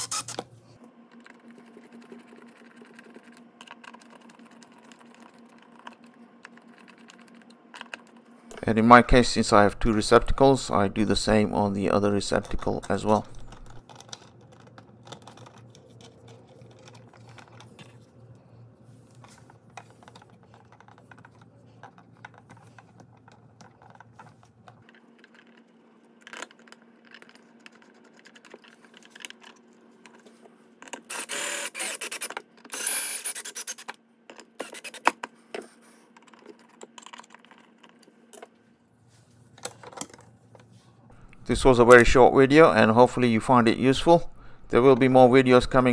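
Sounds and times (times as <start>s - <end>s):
faint scratching and clicks: 12.2s - 31.0s, 34.3s - 38.5s.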